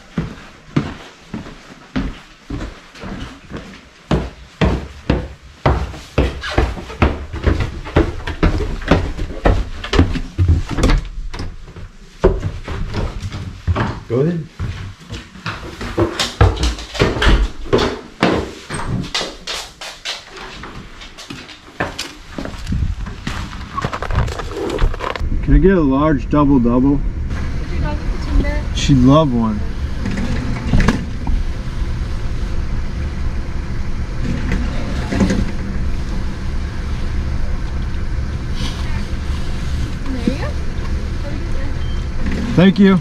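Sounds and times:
footsteps: 0.0s - 25.3s.

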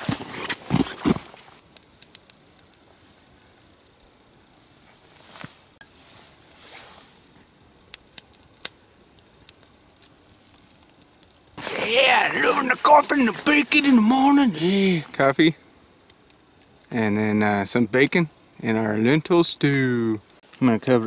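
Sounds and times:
campfire crackling and popping: 0.0s - 21.0s
soft rustles of person moving: 4.7s - 7.5s.

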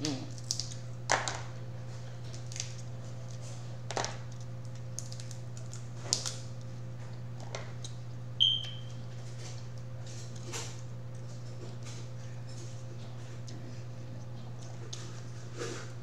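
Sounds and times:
steady low hum: 0.0s - 16.0s
crab shells cracking: 0.3s - 1.5s, 2.3s - 6.7s.

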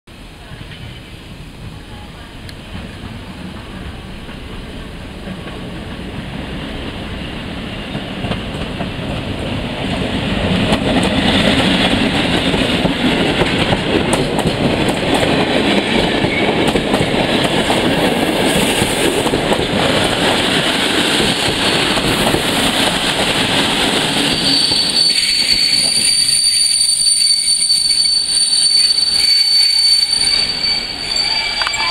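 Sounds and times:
train wheels rumbling on rail: 0.1s - 31.9s
high steady brake squeal: 24.3s - 31.9s.

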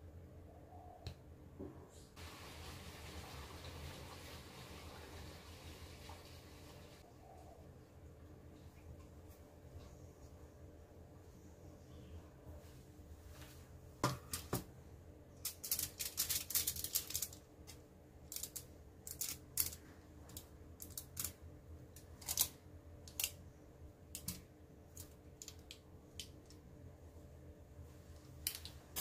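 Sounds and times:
faint low hum: 3.2s - 29.0s
aluminium foil crinkling: 15.4s - 21.4s, 22.2s - 23.4s.

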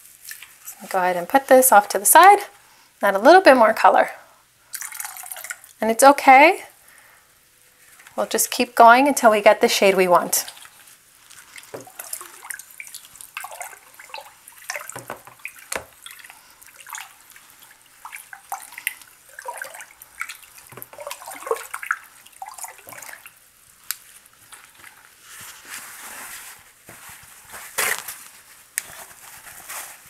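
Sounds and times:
water sloshing in a plastic tub: 4.7s - 5.8s, 7.8s - 28.3s.

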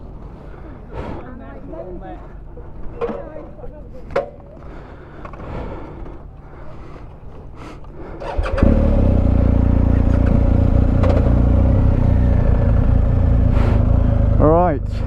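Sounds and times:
motorcycle engine starting and idling: 8.2s - 15.0s.

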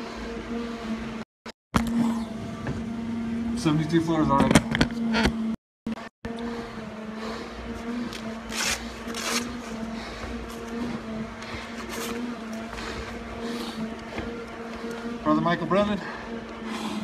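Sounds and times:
stair-climber motor humming: 1.8s - 17.0s
breathing through mask regulator: 6.3s - 15.2s, 15.9s - 17.0s.

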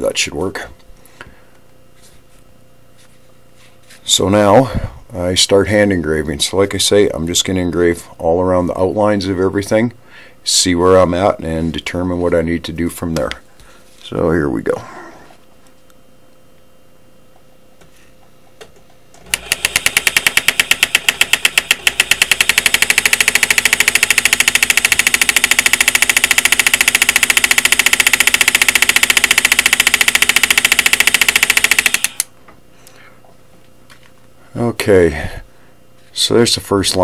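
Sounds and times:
engraving handpiece rapid hammering: 19.4s - 32.2s.

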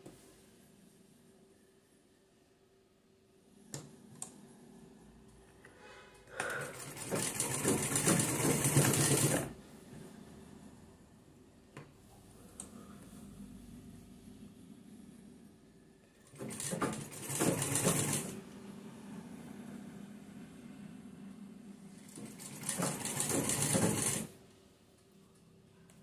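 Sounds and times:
sewing machine stitching: 6.6s - 9.6s, 16.2s - 18.4s, 22.0s - 24.4s.

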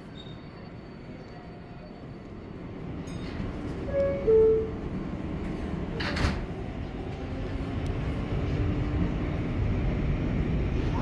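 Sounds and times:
train rumbling: 0.0s - 11.0s
sliding doors closing: 3.4s - 7.7s.

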